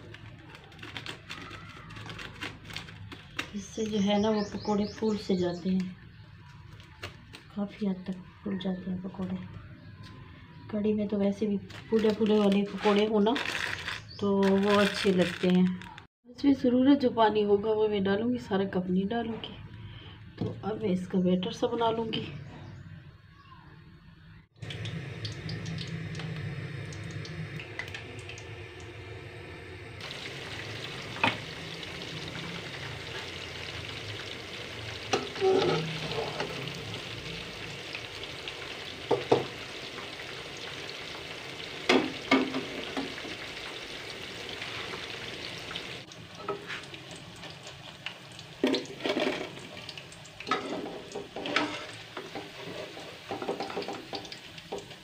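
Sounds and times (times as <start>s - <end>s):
deep-frying oil sizzling: 24.6s - 55.0s.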